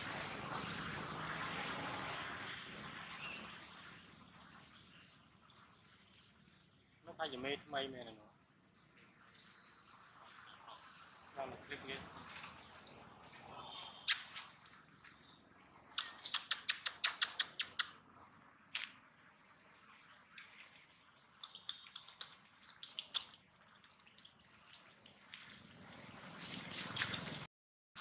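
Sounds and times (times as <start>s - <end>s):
crickets droning: 0.0s - 27.5s
sharp clicks: 15.9s - 18.0s.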